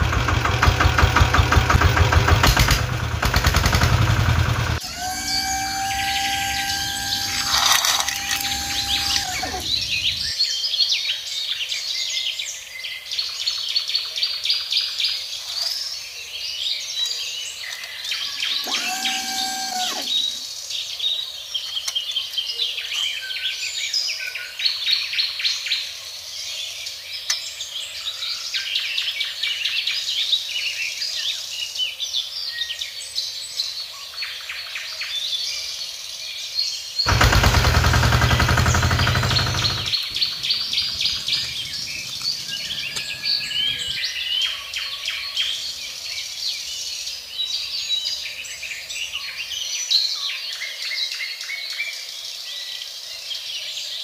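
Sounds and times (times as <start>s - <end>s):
loud noise: 0.0s - 10.3s, 18.6s - 20.4s, 37.1s - 44.0s
small birds chirping: 38.6s - 44.7s.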